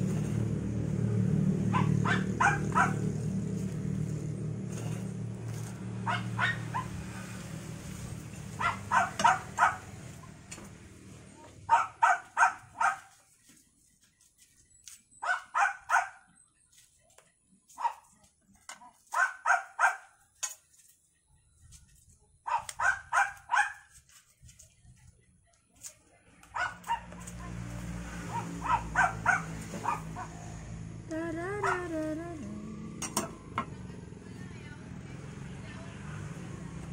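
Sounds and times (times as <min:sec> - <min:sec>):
dog barking: 0:01.7 - 0:03.1, 0:06.0 - 0:06.9, 0:08.6 - 0:10.0, 0:11.7 - 0:13.2, 0:15.2 - 0:16.3, 0:17.8 - 0:18.1, 0:19.1 - 0:20.2, 0:22.4 - 0:23.9, 0:26.5 - 0:27.2, 0:28.3 - 0:30.4.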